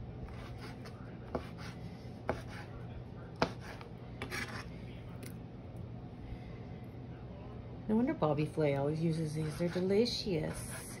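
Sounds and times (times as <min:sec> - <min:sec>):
knife chopping on plastic board: 0:00.3 - 0:02.7, 0:03.4 - 0:04.6.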